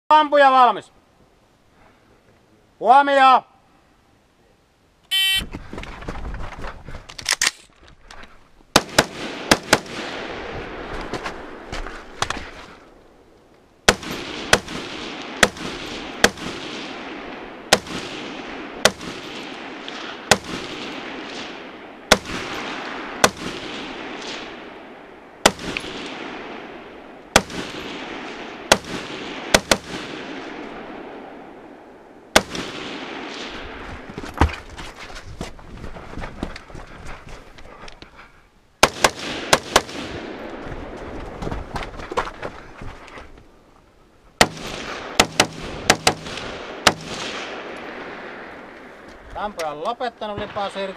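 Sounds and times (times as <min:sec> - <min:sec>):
shot timer beep: 0:05.1 - 0:05.4
rifle shots with echo: 0:08.7 - 0:11.7, 0:13.9 - 0:34.1, 0:38.8 - 0:41.1, 0:44.4 - 0:50.9.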